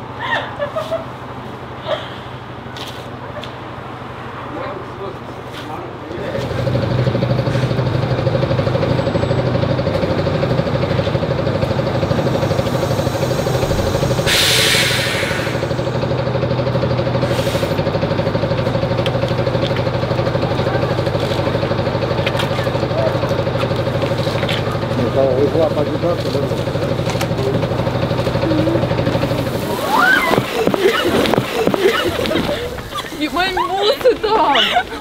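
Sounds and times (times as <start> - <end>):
bus engine idling: 0.0 - 35.0
pneumatic door hiss: 11.9 - 16.0.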